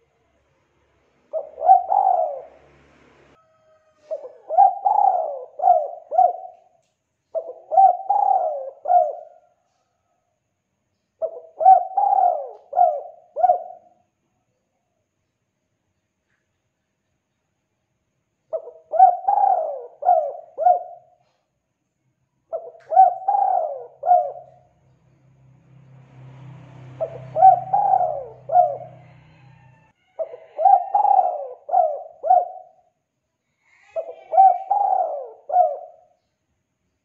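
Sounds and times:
dove cooing: 1.3 - 2.8, 3.9 - 9.5, 11.2 - 14.0, 18.5 - 21.4, 22.5 - 24.7, 27.0 - 32.9, 33.7 - 36.2.

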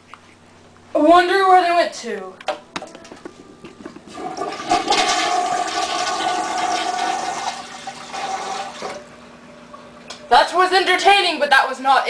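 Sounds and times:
toilet water rushing: 3.4 - 9.8.

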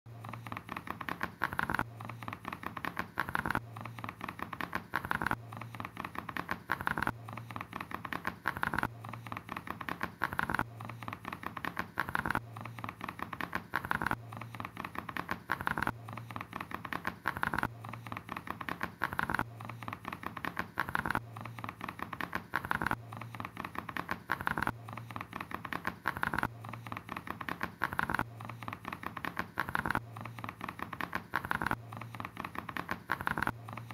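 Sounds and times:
rapid dense clicking: 0.1 - 33.9.

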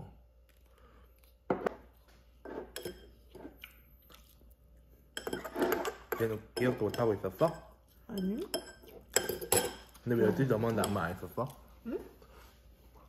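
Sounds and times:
soft chewing: 0.1 - 5.2.

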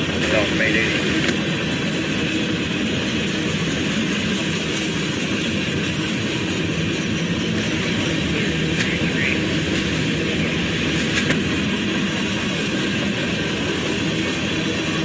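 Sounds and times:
freight train rolling past: 0.0 - 15.0.

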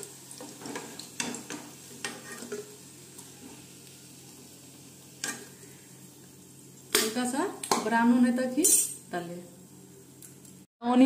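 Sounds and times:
spoon scraping and knocking pan: 0.0 - 2.8
onion rings sizzling in oil: 0.0 - 10.7.

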